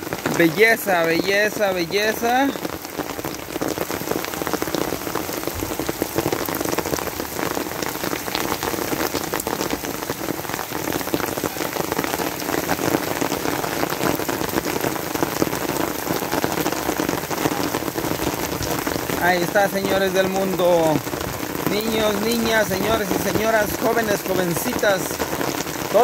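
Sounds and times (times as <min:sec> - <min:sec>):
steady rain: 0:00.0 - 0:26.0.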